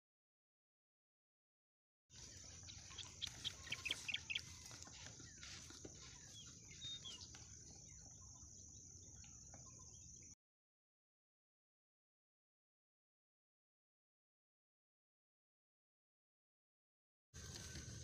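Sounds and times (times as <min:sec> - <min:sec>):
birds calling: 0:02.1 - 0:10.4.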